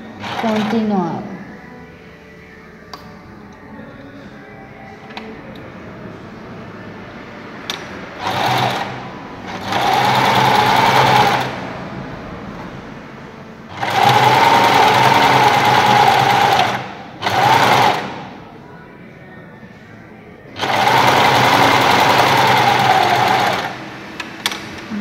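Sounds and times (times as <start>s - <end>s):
sewing machine stitching: 0.2s - 0.9s, 8.2s - 11.6s, 13.7s - 18.3s, 20.6s - 23.8s.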